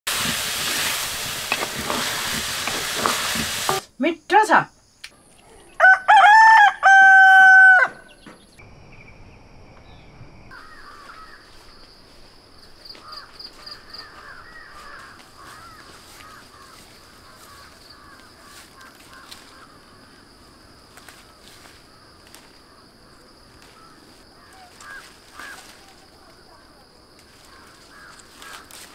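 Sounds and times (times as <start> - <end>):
rooster crowing: 5.7 - 8.2
faint birdsong: 7.9 - 11.9, 12.6 - 28.8.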